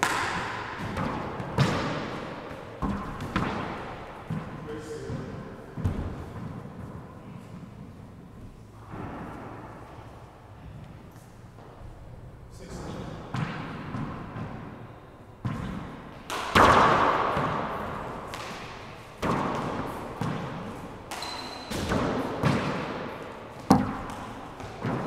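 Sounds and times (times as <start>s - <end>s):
rubber ball smacking with echo: 0.0s - 6.6s, 15.4s - 25.0s.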